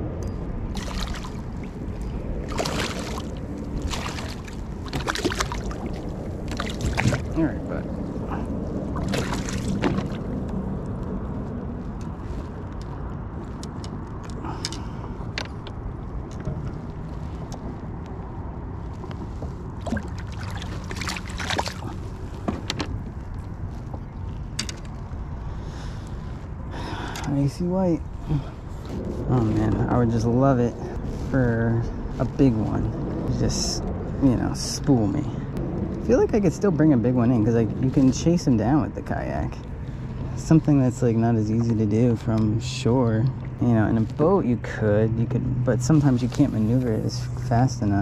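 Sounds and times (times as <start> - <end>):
low rumble: 0.0 - 48.0
water splashing at a kayak: 0.7 - 10.8, 19.2 - 24.7
fishing gear clicking and rattling: 13.6 - 17.8, 20.0 - 25.4.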